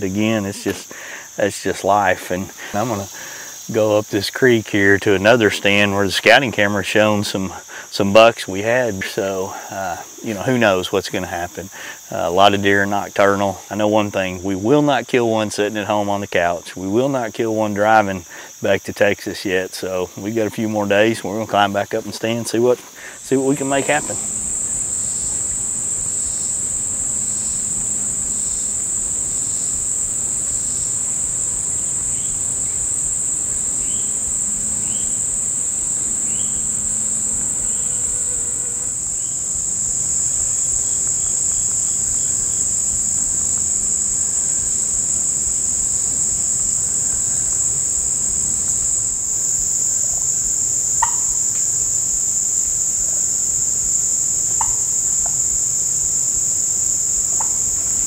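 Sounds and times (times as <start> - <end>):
insect chorus drone: 0.0 - 58.0
faint chirps: 22.9 - 42.7.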